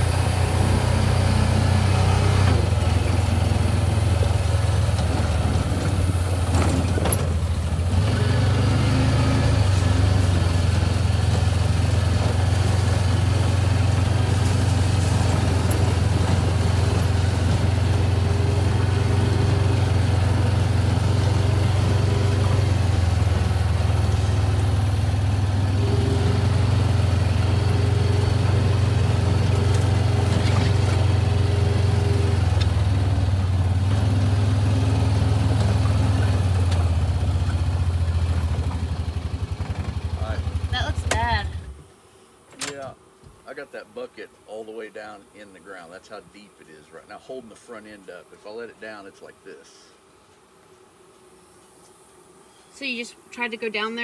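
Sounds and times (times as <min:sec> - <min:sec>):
diesel engine running steadily: 0:00.0 - 0:41.8.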